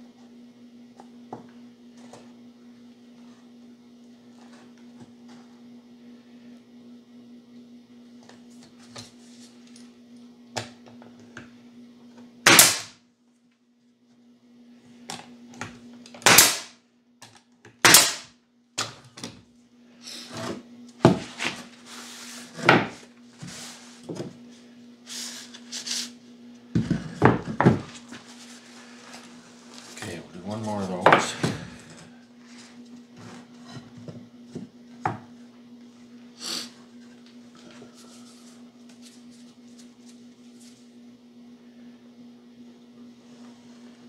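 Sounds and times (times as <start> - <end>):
steady low hum: 0.0 - 44.0
pneumatic nailer firing: 12.4 - 13.0, 16.2 - 16.8, 17.8 - 18.3.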